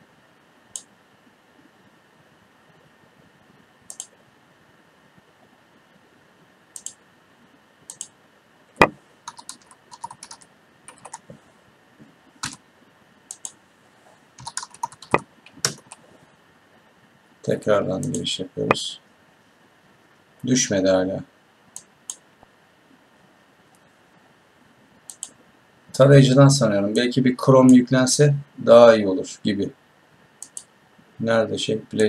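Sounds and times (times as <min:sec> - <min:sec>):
mouse clicks: 0:03.9 - 0:04.2, 0:06.8 - 0:07.0, 0:07.9 - 0:08.2, 0:13.3 - 0:13.6, 0:25.1 - 0:25.4, 0:30.4 - 0:30.7
typing on a keyboard: 0:09.3 - 0:11.2, 0:12.4 - 0:12.6, 0:14.4 - 0:16.0.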